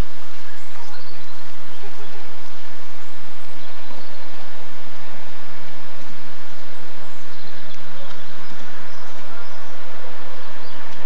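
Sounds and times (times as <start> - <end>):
constant hiss: 0.0 - 11.0
faint bird chirps: 0.3 - 4.4.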